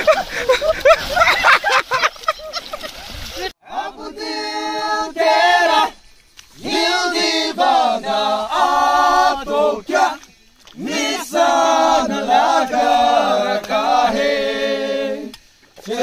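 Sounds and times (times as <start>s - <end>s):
a cappella choir singing: 3.6s - 16.0s.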